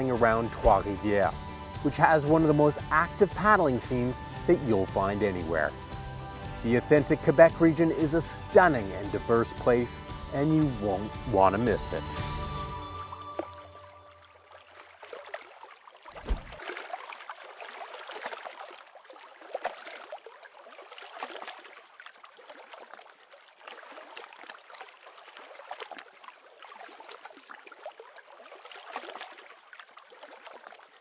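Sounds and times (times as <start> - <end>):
music low note: 0.0 - 5.7
deep low thump: 0.6 - 1.5, 16.2 - 16.6
small waves lapping: 13.3 - 31.0.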